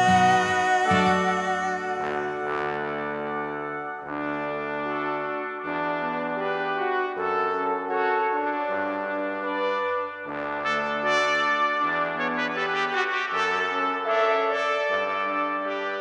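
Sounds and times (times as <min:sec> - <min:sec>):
bass line: 0:00.0 - 0:03.3
sustained brass-like chords: 0:00.0 - 0:16.0.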